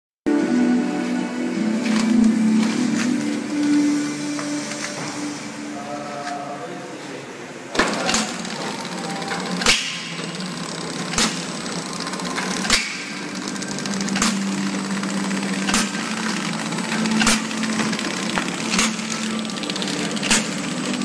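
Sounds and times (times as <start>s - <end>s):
machine humming: 0.3s - 21.0s
sharp machine clack: 7.8s - 21.0s.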